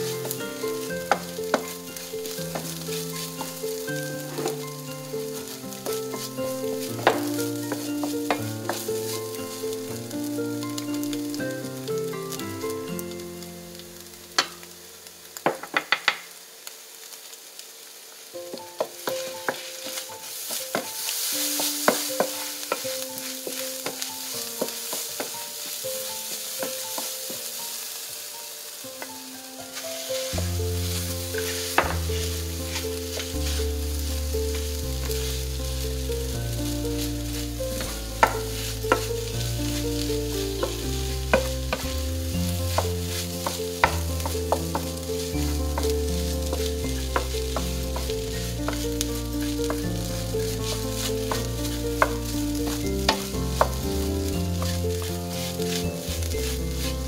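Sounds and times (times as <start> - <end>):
spatula scraping and knocking pan: 0.0 - 9.7, 18.5 - 27.6, 30.1 - 36.0, 36.6 - 42.0, 42.6 - 57.0
food sizzling: 0.0 - 57.0.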